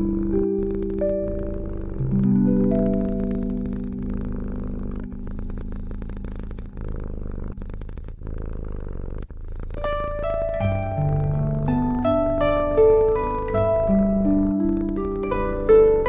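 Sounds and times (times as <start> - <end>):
plucked music notes: 0.0 - 6.1, 9.8 - 16.0
music notes: 0.0 - 6.4, 9.8 - 16.0
cat purring: 0.0 - 16.0.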